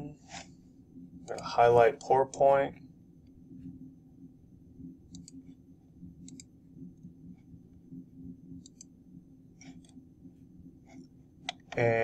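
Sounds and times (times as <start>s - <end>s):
faint low hum: 0.0s - 12.0s
computer mouse clicking: 5.1s - 5.6s, 6.2s - 7.1s, 8.6s - 9.0s, 9.6s - 10.0s, 10.8s - 11.8s.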